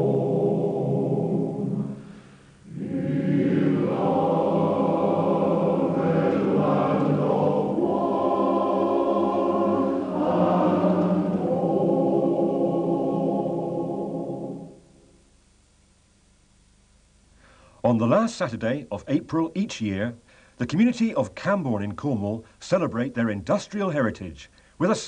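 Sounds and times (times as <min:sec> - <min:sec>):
choir singing held chords: 0:00.0 - 0:15.3.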